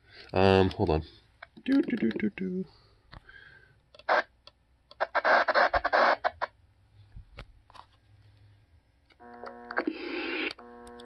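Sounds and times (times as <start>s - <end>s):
radio static crackling: 5.0s - 6.5s, 9.2s - 11.0s.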